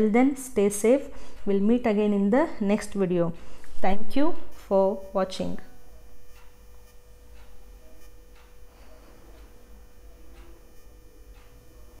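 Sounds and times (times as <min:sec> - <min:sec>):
low steady hum: 0:00.0 - 0:12.0
soft ticks: 0:06.3 - 0:08.6, 0:09.4 - 0:11.7.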